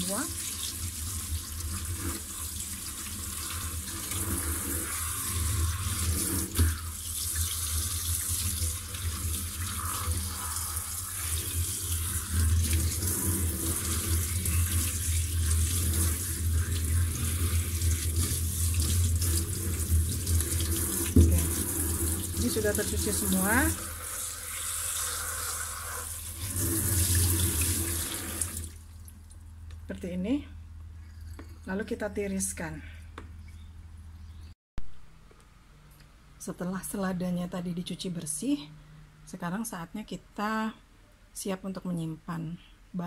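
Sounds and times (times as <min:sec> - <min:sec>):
faucet running into steel sink: 0:00.0 - 0:28.8
lettuce leaves rubbed and rinsed: 0:08.7 - 0:25.4.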